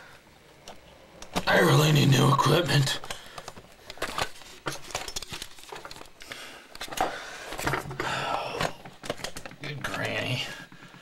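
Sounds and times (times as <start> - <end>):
camcorder handling noise: 3.0 - 10.1.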